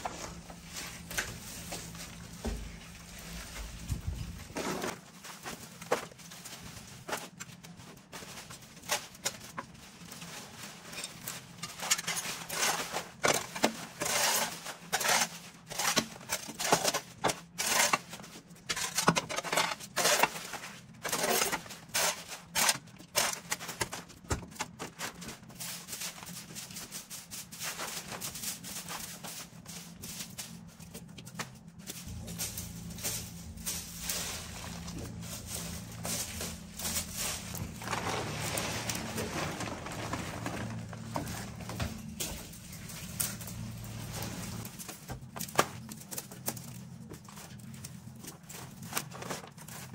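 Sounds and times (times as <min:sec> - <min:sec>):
hand tools scraping debris: 0:08.0 - 0:24.1, 0:31.8 - 0:46.8
faint low hum: 0:30.4 - 0:45.3.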